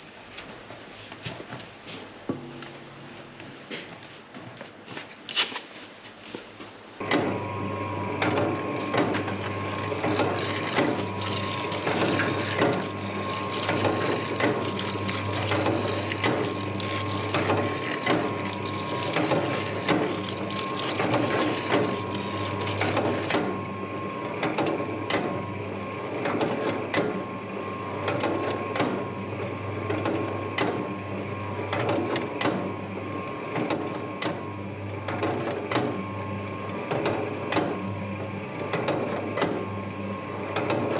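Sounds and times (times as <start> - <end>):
dough mixer motor hum: 7.0 - 40.9.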